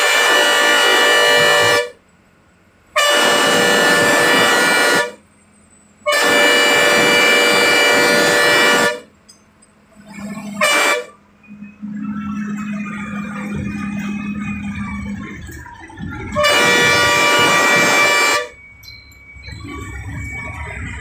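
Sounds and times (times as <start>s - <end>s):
bus horn blasts: 0.0s - 2.0s, 2.9s - 5.2s, 6.0s - 9.2s, 10.4s - 11.2s, 16.2s - 18.6s.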